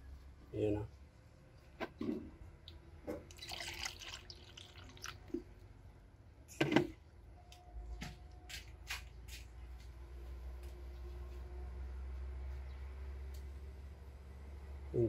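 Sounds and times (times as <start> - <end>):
drips and pops: 2.6 - 5.5
coolant bubbling and gurgling: 3.2 - 5.5.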